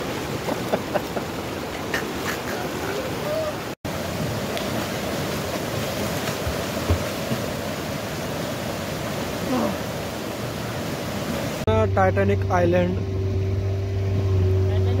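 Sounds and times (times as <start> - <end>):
people splashing in water: 0.0 - 7.8
stream and waterfall rushing: 0.0 - 11.7.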